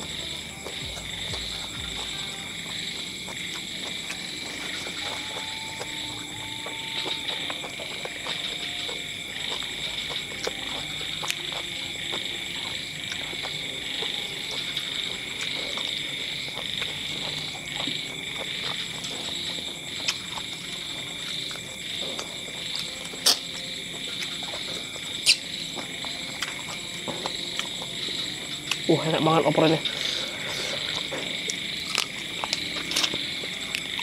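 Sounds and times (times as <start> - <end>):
chewing and lip-smacking: 0.0 - 34.0
frogs calling: 0.0 - 34.0
insects chirping: 0.0 - 34.0
wet mouth clicks: 23.2 - 23.5.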